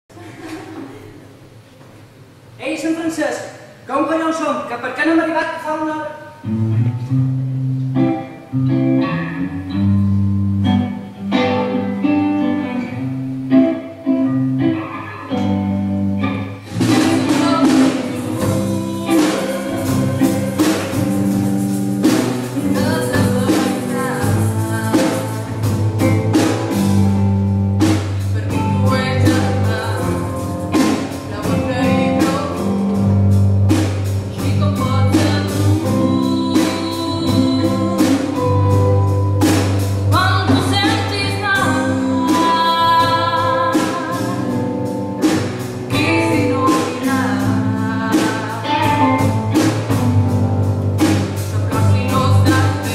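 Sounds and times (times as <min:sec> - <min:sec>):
electric guitars: 0:06.2 - 0:52.9
bass guitar: 0:06.4 - 0:52.9
drum kit beat: 0:14.9 - 0:52.9
person singing: 0:16.6 - 0:26.8, 0:28.4 - 0:33.2, 0:34.4 - 0:39.4, 0:40.1 - 0:45.0, 0:45.9 - 0:49.5, 0:51.5 - 0:52.9.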